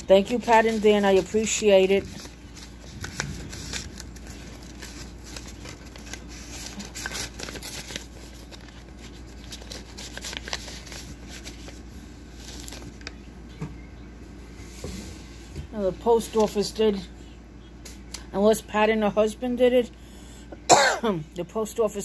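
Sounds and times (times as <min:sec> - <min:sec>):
paper rustling: 0:00.0 - 0:13.2
steady low hum: 0:00.0 - 0:22.0.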